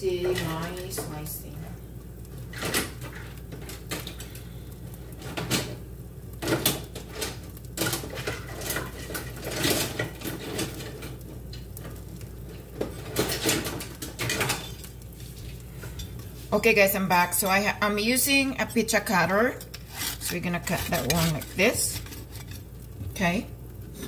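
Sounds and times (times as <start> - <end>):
utensils and dishes clinking: 12.8 - 14.9, 19.5 - 22.6.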